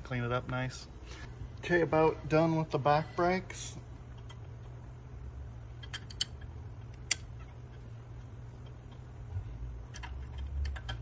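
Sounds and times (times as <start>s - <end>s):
steady low hum: 0.0s - 11.0s
small metal clicks: 5.8s - 9.1s, 9.9s - 11.0s.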